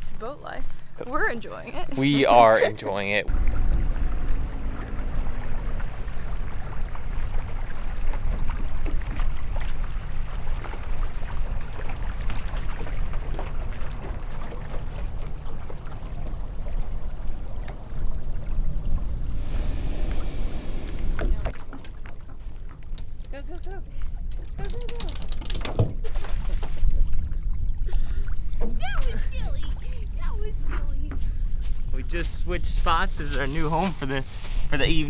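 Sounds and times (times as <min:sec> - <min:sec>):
small waves lapping on sand: 0:31.2 - 0:35.0.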